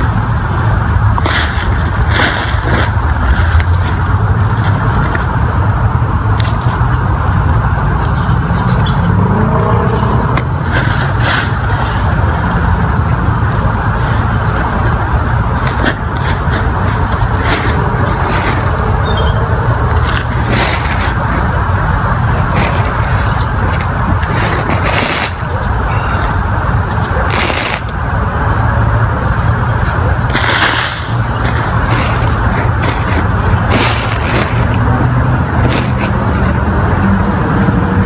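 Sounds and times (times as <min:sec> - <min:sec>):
loud low rumbling noise: 0:00.0 - 0:38.0
faint high chirp: 0:19.0 - 0:19.4.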